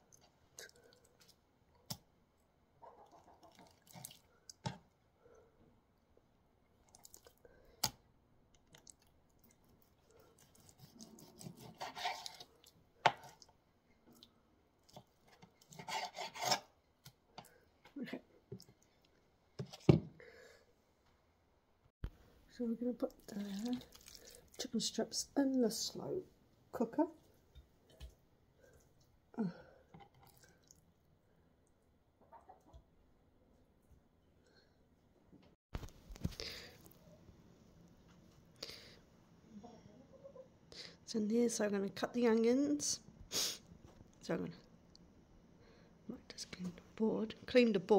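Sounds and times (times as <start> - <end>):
knife scraping: 9.7 - 13.4, 15.3 - 16.8
knife slicing raw meat: 10.4 - 12.5.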